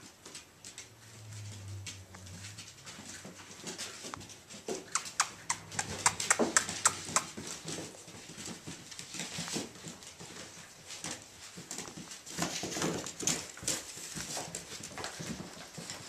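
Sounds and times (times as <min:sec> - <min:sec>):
short sharp clicks and squeaks: 0:04.8 - 0:07.3.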